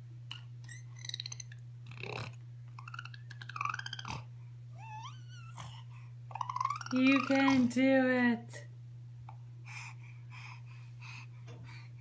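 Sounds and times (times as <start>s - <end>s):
baby squeaking and cooing: 0.3s - 7.5s.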